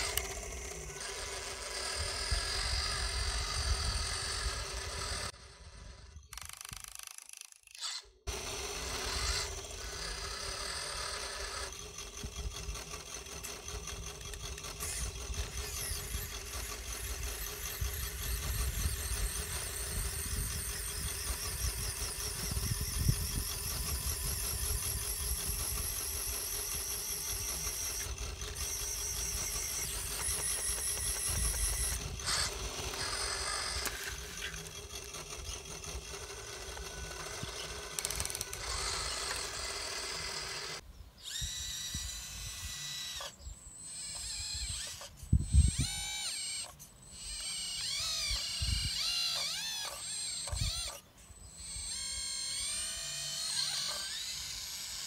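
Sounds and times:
hydraulic pump running: 0:00.0 - 0:06.9, 0:08.3 - 0:42.0.

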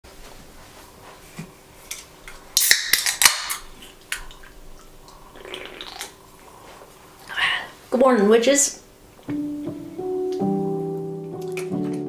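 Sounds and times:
drink can cracked open: 0:02.6 - 0:03.7.

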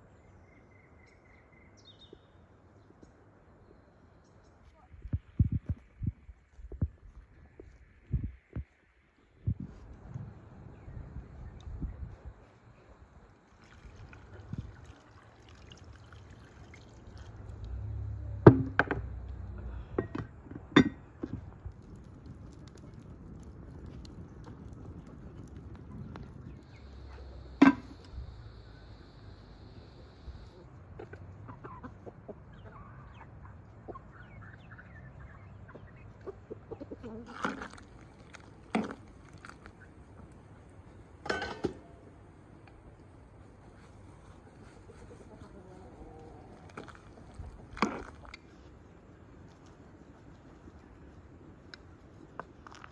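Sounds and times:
water pouring into pot: 0:13.5 - 0:17.6
hens and rooster clucking: 0:26.0 - 0:38.2, 0:43.8 - 0:50.1.

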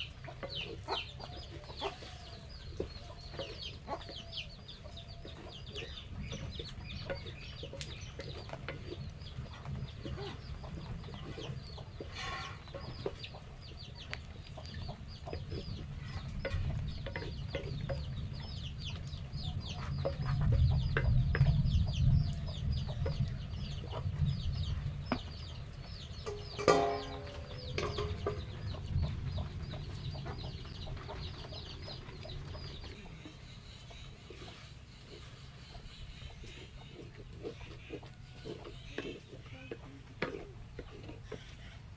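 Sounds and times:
chickens clucking: 0:00.0 - 0:41.9
wooden ladle scraping clay pot: 0:05.2 - 0:13.3, 0:26.2 - 0:28.8, 0:33.4 - 0:41.9.

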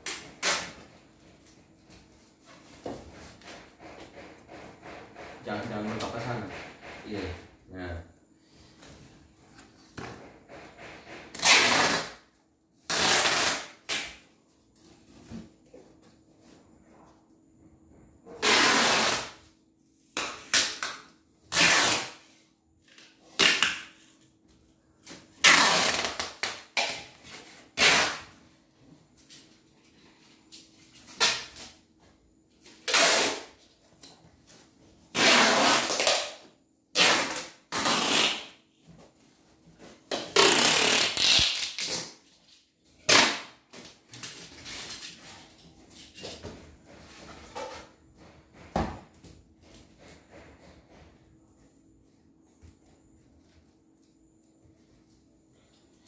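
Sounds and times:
packing tape ripping off roll: 0:00.0 - 0:00.9, 0:11.3 - 0:12.2, 0:12.8 - 0:14.2, 0:18.4 - 0:19.4, 0:20.1 - 0:24.1, 0:25.0 - 0:28.4, 0:31.0 - 0:31.8, 0:32.7 - 0:33.6, 0:35.1 - 0:38.6, 0:40.0 - 0:44.4.

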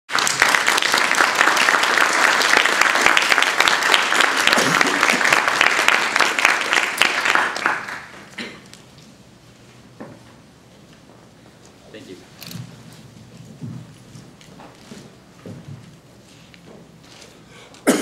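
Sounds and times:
audience applauding: 0:00.1 - 0:08.4.

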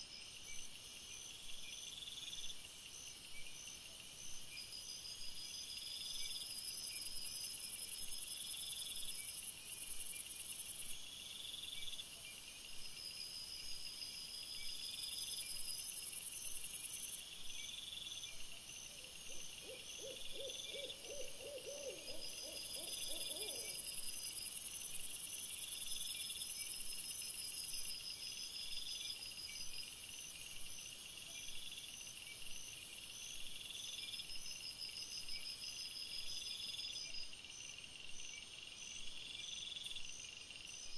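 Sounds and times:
insects chirping: 0:00.1 - 0:40.9.

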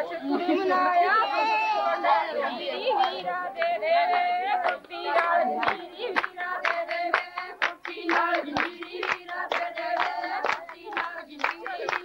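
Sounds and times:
women singing: 0:00.0 - 0:12.0
hand claps keeping time: 0:03.0 - 0:12.0.

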